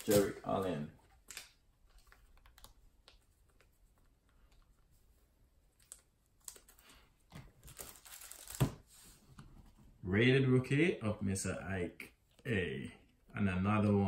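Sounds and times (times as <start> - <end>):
foil wrapper crinkling: 7.6 - 8.7.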